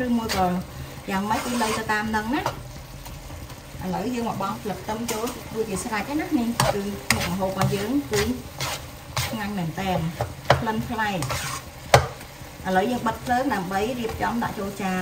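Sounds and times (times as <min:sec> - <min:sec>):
stir-fry sizzling in a wok: 0:00.0 - 0:15.0
spatula knocking against pan: 0:10.2 - 0:10.7, 0:11.9 - 0:12.2.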